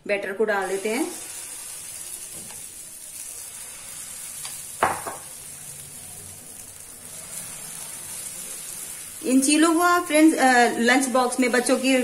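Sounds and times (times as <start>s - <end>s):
batter sizzling on griddle: 0.6s - 12.0s.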